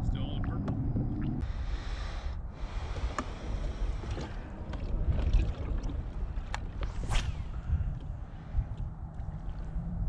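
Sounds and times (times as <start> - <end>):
wind buffeting the microphone: 0.0 - 10.0
water lapping around kayak: 2.6 - 7.0.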